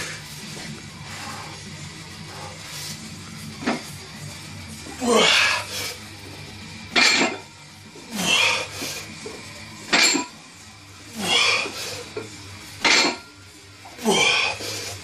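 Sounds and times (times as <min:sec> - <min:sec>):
person grunting: 0:05.0 - 0:05.6, 0:14.0 - 0:14.6.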